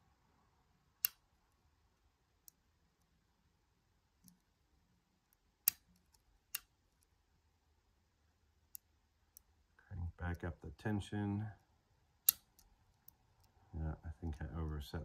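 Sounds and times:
lock pick metallic clicks: 0:01.0 - 0:01.2, 0:05.3 - 0:07.1, 0:12.2 - 0:13.6.

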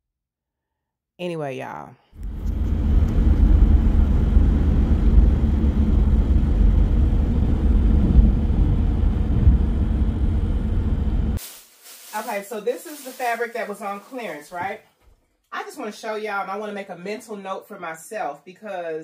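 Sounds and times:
car road and wind rumble: 0:02.2 - 0:11.4.

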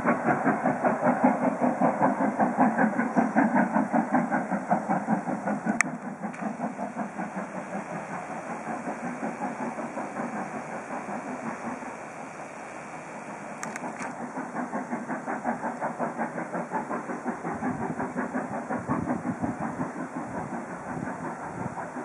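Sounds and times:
steam locomotive exhaust beats: 0:00.0 - 0:22.0
sharp click: 0:13.6 - 0:14.2.

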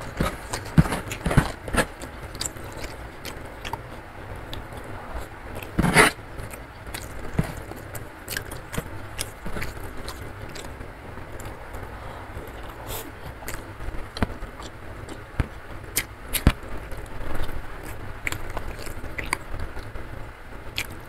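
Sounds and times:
chewing: 0:00.0 - 0:20.0, 0:20.7 - 0:21.0
low rumble: 0:01.4 - 0:07.9, 0:09.0 - 0:15.8.

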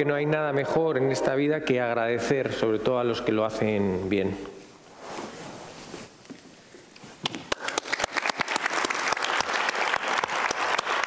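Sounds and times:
audience applauding: 0:07.5 - 0:11.0.

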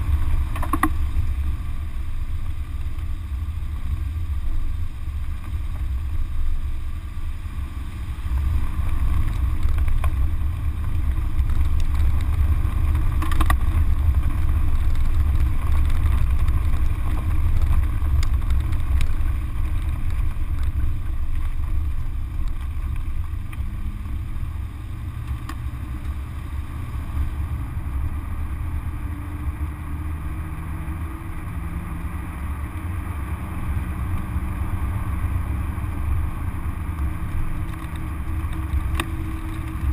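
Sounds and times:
faint car engine: 0:00.0 - 0:39.9
gravel ticks: 0:00.0 - 0:39.9
tyre and road rumble: 0:00.0 - 0:39.9.

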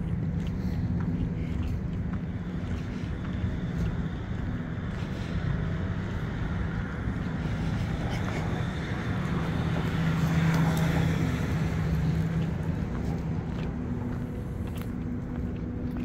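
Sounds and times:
low traffic hum: 0:00.0 - 0:16.0
car engine passing by: 0:05.1 - 0:14.7.

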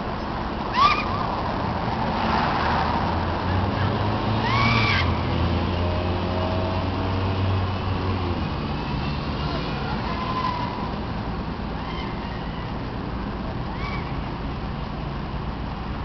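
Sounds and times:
vehicle engine rumble: 0:00.0 - 0:16.0.

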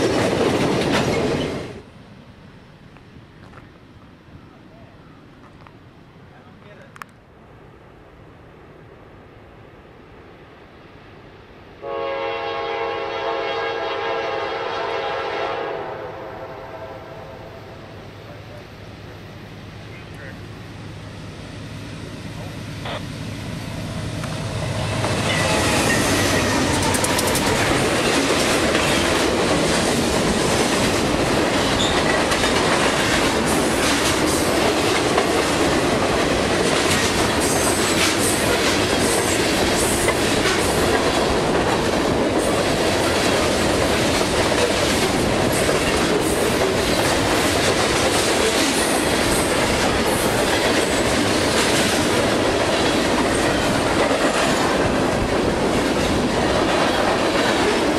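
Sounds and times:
wheels clacking over rail joints: 0:00.0 - 0:01.8, 0:24.0 - 0:57.9
freight train passing: 0:00.0 - 0:57.9.

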